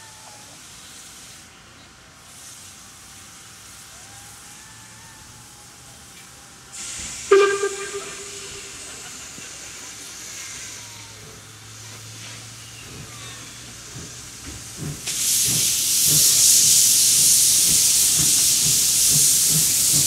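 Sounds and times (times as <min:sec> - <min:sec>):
steam hissing: 0:00.6 - 0:04.5, 0:06.6 - 0:20.0
steam whistle blast: 0:06.8 - 0:09.6.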